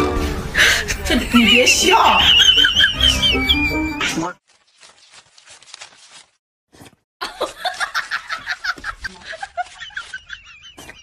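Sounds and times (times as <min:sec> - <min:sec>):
person laughing: 0:00.8 - 0:04.3, 0:07.2 - 0:11.0.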